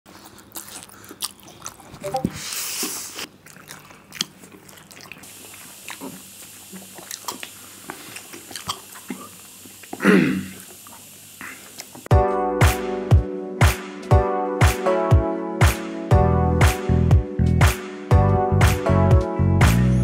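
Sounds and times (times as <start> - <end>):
wet chewing and mouth smacks: 0.1 - 10.0
noodle slurping: 0.2 - 11.9.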